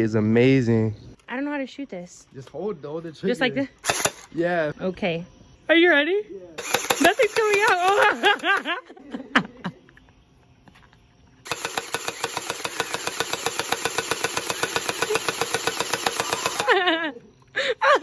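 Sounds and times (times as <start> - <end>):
toy blaster firing full auto: 3.8 - 4.3, 6.6 - 8.7, 11.5 - 16.8.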